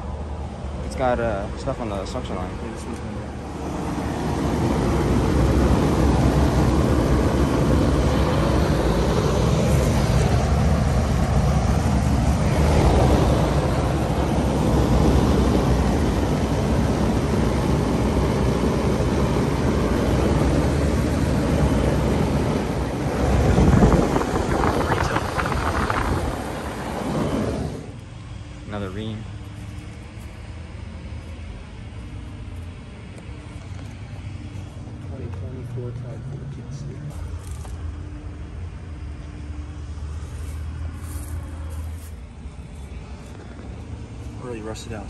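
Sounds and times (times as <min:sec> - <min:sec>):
wind buffeting microphone: 0:03.4 - 0:28.0.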